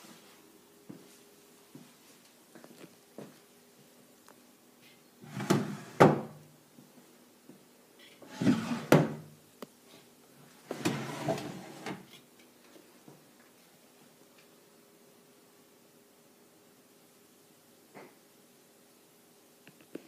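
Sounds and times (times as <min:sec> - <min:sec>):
wooden drawers sliding: 0:05.2 - 0:06.3, 0:08.2 - 0:09.2, 0:10.7 - 0:12.1
drawer knocking shut: 0:08.4 - 0:09.2.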